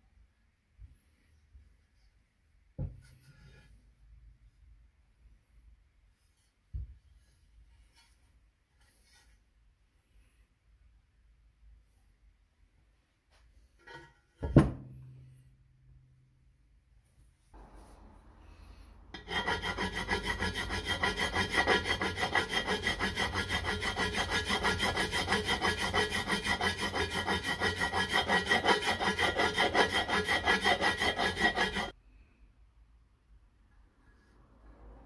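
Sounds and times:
metal file scraping metal: 13.8s - 14.3s, 19.1s - 32.0s.

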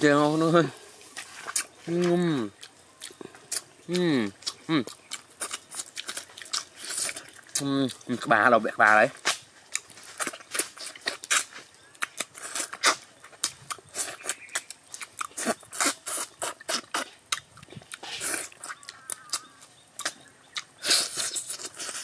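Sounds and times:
people chewing and lip smacking: 0.9s - 22.0s
wet clicks and crunches: 9.0s - 22.0s.

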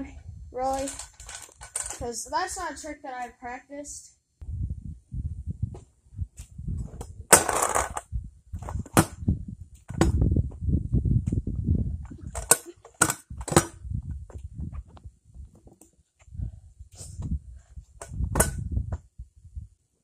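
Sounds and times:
scooter rolling over concrete: 0.6s - 2.2s, 6.8s - 9.1s
scooter deck clacking on ground: 7.0s - 9.2s.

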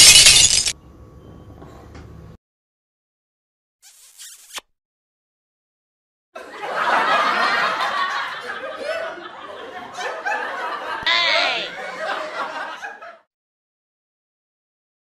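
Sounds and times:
loud laughter sound effect: 11.0s - 13.3s.

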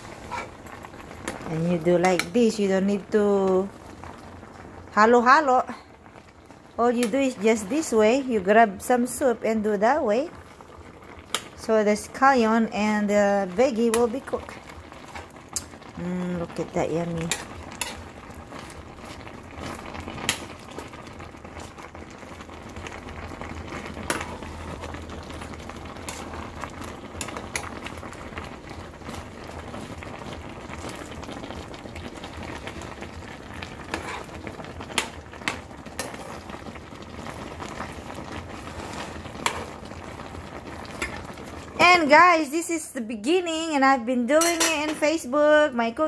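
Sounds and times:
soup bubbling at a boil: 0.0s - 42.8s.

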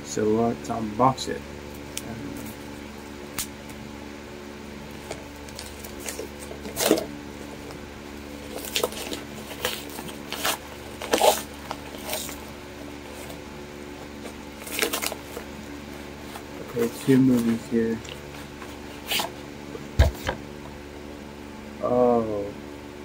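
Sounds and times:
paper envelope rustling and tearing: 4.9s - 13.4s, 14.0s - 19.4s.

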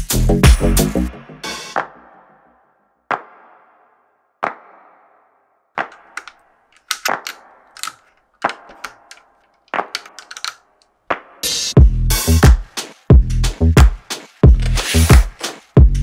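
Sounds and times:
plastic bricks clicking together: 5.8s - 10.9s.

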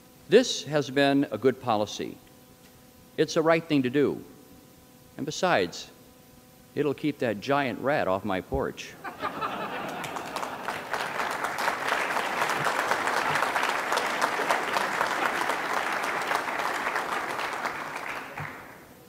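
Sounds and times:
audience applauding: 9.2s - 18.9s.

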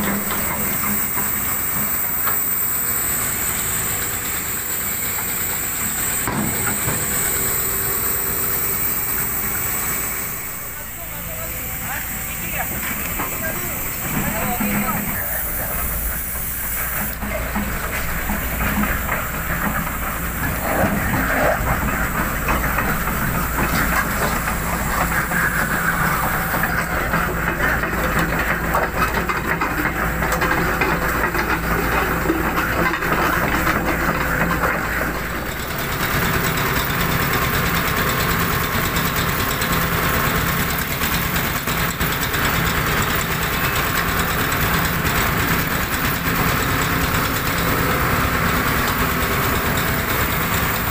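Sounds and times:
excavator diesel engines running: 0.0s - 50.9s.

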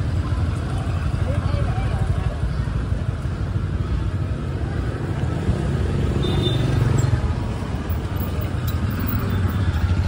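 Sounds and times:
street traffic noise: 0.0s - 10.0s.

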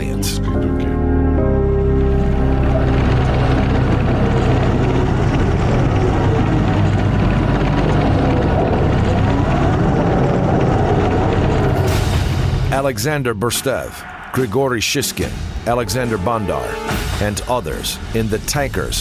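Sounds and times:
tank engine drone and rumble: 1.5s - 12.8s.

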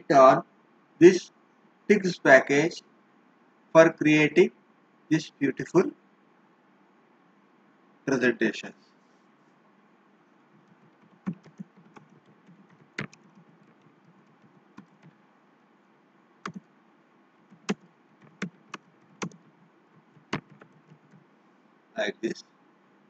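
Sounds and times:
keyboard keystroke clicks: 10.6s - 15.1s, 17.5s - 21.2s.

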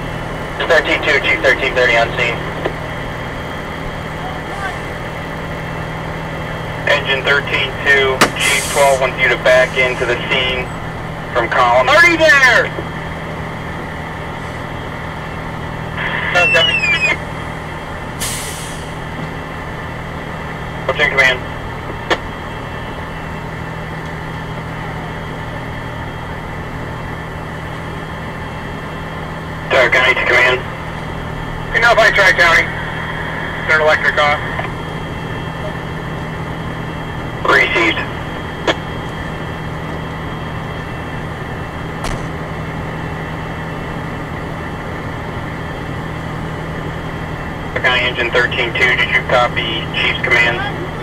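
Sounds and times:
fire engine idling hum: 0.0s - 51.0s
sharp click: 42.0s - 42.4s.

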